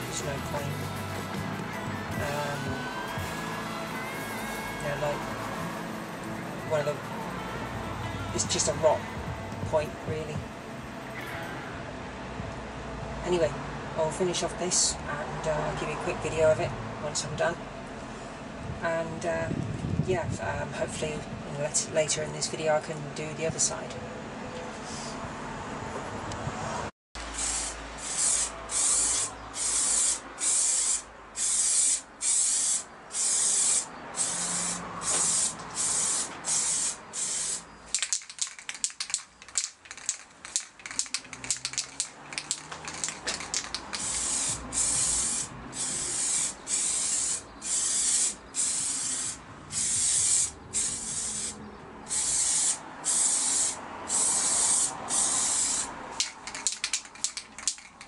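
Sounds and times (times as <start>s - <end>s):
spray can rattling when shaken: 0.0s - 7.4s, 27.4s - 58.0s
spray can spraying bursts: 0.0s - 7.5s, 27.2s - 58.0s.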